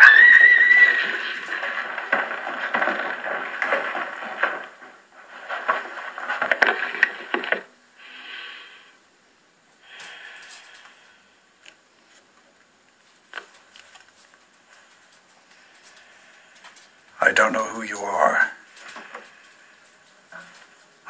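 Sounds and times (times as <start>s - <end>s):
film soundtrack over phone line: 0.0s - 21.0s
breaths into phone: 9.8s - 11.3s.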